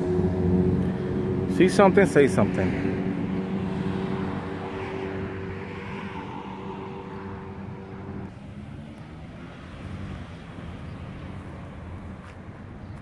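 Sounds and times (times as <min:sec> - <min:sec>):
car engine passing: 0:00.0 - 0:12.5.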